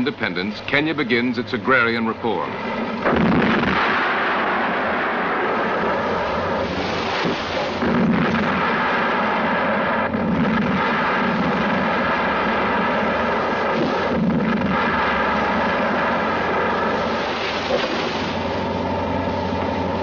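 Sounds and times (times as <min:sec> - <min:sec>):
explosive charges rumbling: 0:02.7 - 0:19.3.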